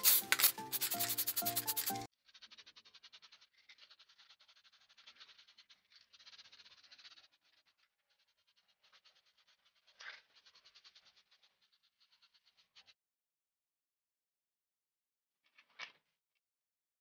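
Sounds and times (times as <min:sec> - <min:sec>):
fast scratching strokes: 0:00.0 - 0:13.0.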